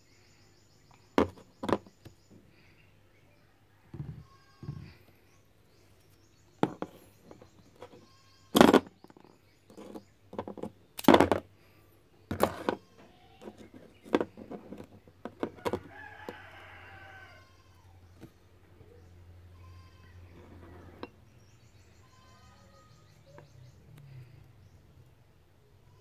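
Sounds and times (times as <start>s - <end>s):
stone knocking and scraping: 1.2s - 2.0s, 6.6s - 8.0s, 8.6s - 11.4s, 12.3s - 12.8s, 13.4s - 16.4s
rooster crowing: 15.6s - 17.7s, 22.2s - 23.2s.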